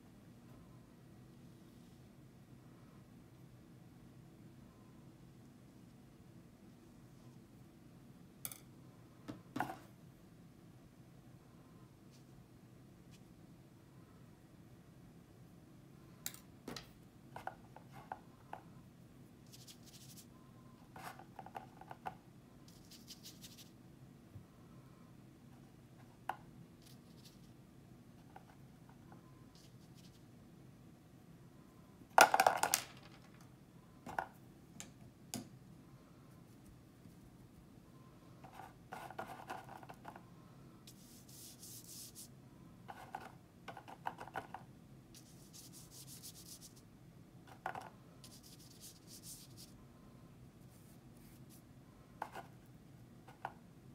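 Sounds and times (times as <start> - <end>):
paintbrush scratching on paper: 22.7 - 23.7, 40.9 - 42.3, 45.2 - 46.8, 48.2 - 49.8.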